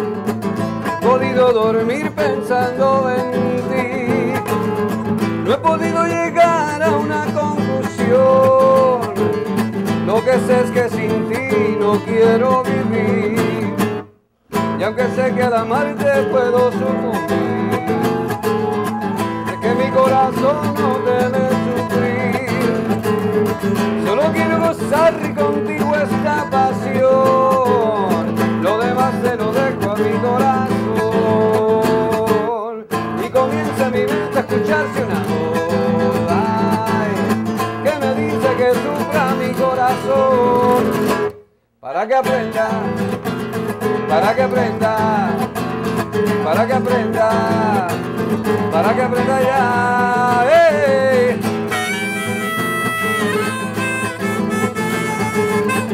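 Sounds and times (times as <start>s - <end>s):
classical guitar strumming chords: 0.0s - 41.6s, 42.2s - 55.9s
harmonica melody with bending notes: 2.9s - 5.5s, 16.2s - 25.2s, 51.2s - 55.9s.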